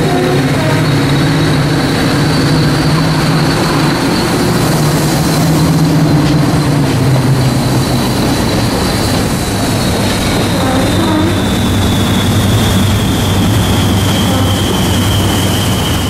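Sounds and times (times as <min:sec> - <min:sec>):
diesel locomotive engine drone: 0:00.0 - 0:16.0
high whine: 0:00.0 - 0:16.0.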